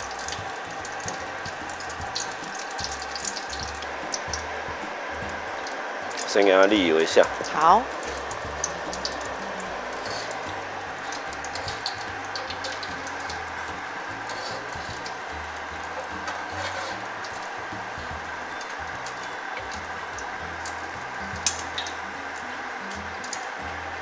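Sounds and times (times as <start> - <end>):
hot oil sizzling in a wok: 0.0 - 24.0.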